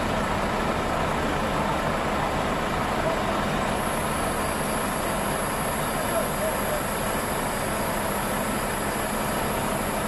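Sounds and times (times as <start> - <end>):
diesel engine idling: 0.0 - 10.0
high steady whine: 0.0 - 10.0.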